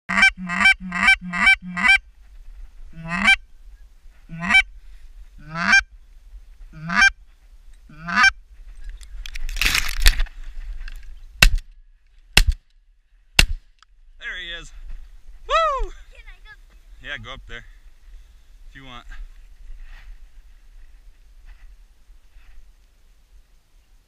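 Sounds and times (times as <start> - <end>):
goose honking: 0.1 - 2.0, 2.9 - 3.4, 4.3 - 4.7, 5.4 - 5.8, 6.8 - 7.1, 7.9 - 8.4
rustling: 8.5 - 17.0, 17.7 - 23.7.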